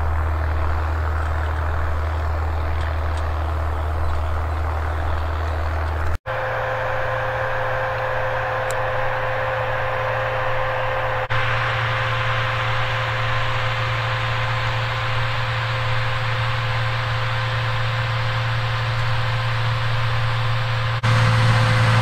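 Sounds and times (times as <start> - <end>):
tractor diesel engine under load: 0.0 - 22.0
high tone: 6.3 - 15.2.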